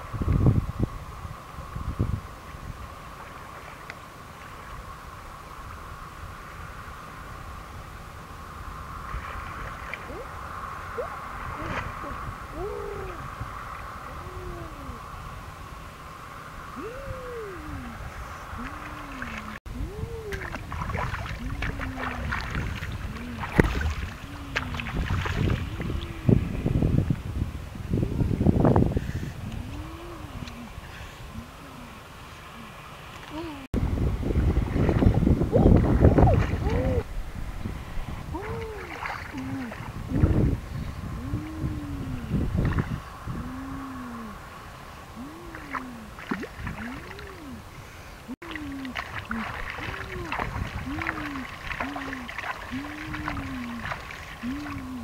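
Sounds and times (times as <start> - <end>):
water splashing in pond: 8.9 - 14.9, 16.7 - 26.5, 34.3 - 40.6, 41.2 - 44.4, 45.2 - 55.0
low hooting call: 9.8 - 26.8, 29.4 - 33.7, 35.4 - 55.0
low rising and falling call: 10.0 - 15.3, 16.5 - 20.4, 43.0 - 46.2, 46.8 - 47.7
hands splashing in muddy water: 20.2 - 25.8, 48.4 - 54.8.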